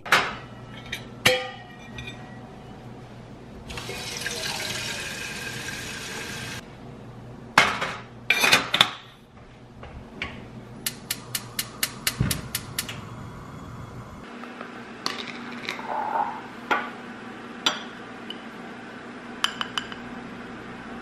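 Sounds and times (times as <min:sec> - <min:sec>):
tap water running into kettle: 0:03.7 - 0:06.6.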